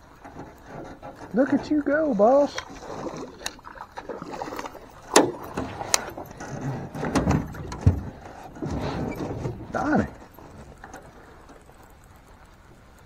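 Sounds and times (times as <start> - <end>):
dull thumps: 5.0 - 11.6
gear knocking against boat hull: 5.0 - 11.6.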